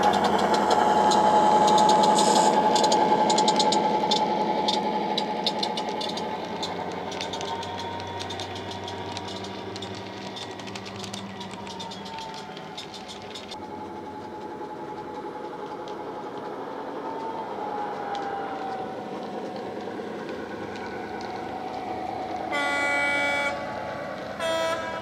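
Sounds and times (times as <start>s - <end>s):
diesel engine running with whine: 0.0s - 25.0s
locomotive horn blasts: 22.5s - 25.0s.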